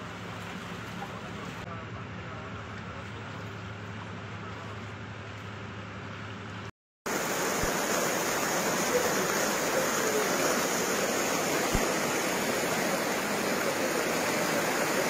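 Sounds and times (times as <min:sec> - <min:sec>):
floodwater rushing: 0:07.1 - 0:15.0.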